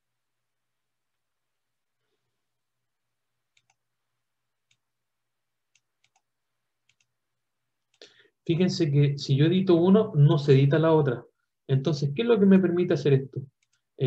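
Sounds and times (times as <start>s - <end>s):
computer mouse clicks: 3.5s - 3.8s, 5.7s - 7.1s, 13.6s - 13.8s.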